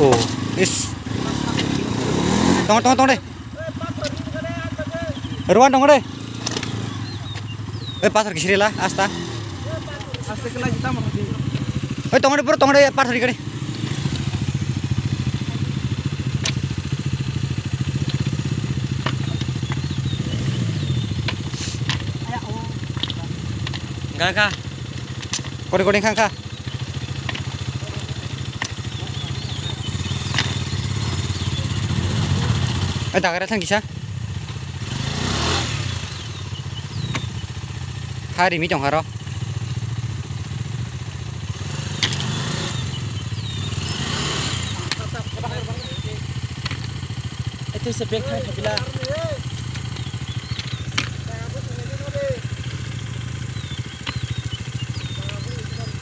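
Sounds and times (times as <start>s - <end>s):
motorcycle engine idling: 0.0s - 56.0s
sharp click: 6.2s - 7.5s, 41.9s - 42.4s.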